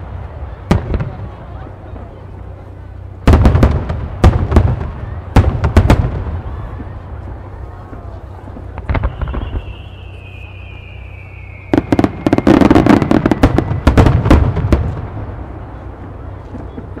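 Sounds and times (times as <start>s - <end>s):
firework bursts and crackles: 0.0s - 17.0s
firework launch pops: 8.6s - 10.9s
falling whistle: 9.0s - 14.0s.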